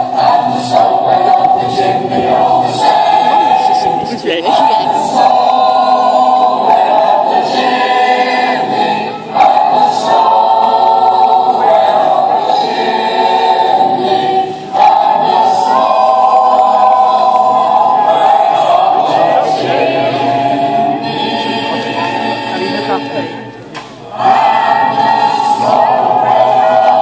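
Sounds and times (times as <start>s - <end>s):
choir singing: 0.0s - 27.0s.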